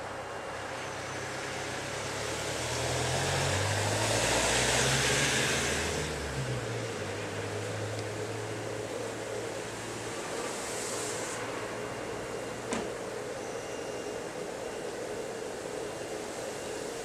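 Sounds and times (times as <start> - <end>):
vehicle engine passing: 2.0 - 8.6.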